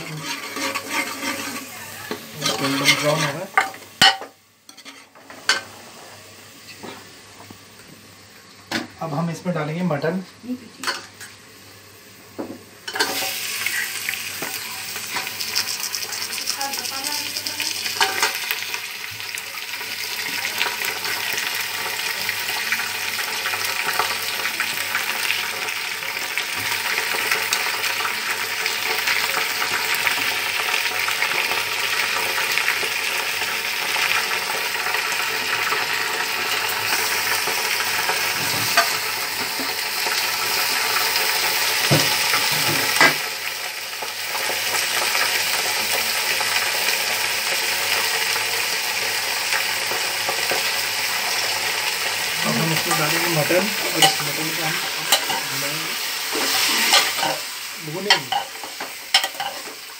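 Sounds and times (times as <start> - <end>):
meat sizzling in hot oil: 0.0 - 59.9.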